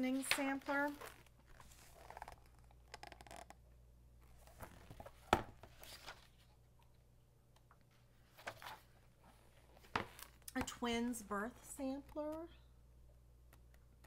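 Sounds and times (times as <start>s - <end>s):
paper pages rustling: 0.1s - 2.6s, 4.4s - 6.5s, 8.2s - 10.5s.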